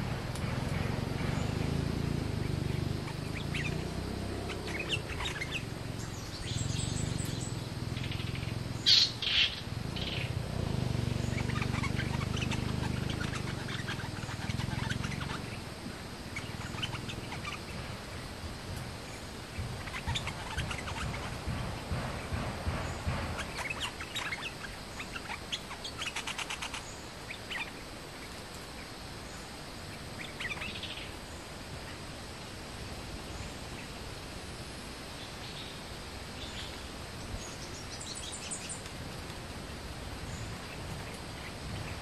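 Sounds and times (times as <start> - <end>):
low droning hum: 0.0 - 23.8
birds chirping: 0.0 - 32.0, 36.4 - 38.9.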